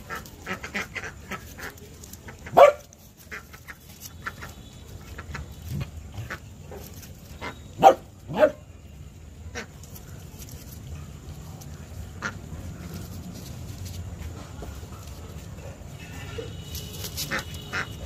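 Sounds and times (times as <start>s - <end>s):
dog barking: 2.5s - 3.0s, 7.8s - 8.7s.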